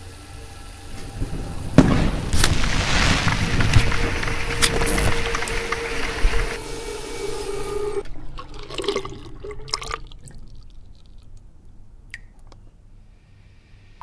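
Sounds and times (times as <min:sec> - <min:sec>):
water drips: 0:04.3 - 0:12.6.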